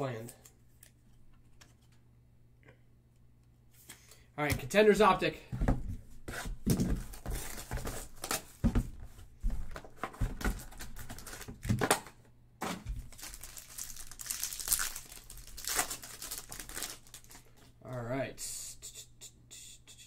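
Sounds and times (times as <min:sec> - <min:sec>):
foil pack crinkling: 0:10.5 - 0:11.8, 0:12.9 - 0:17.7.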